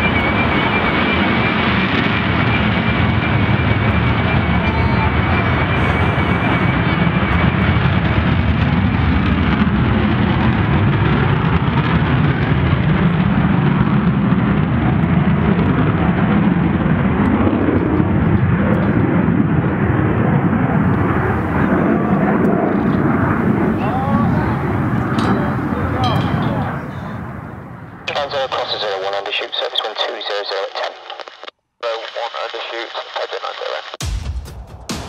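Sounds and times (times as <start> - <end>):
jet engine rumble: 0.0 - 34.1.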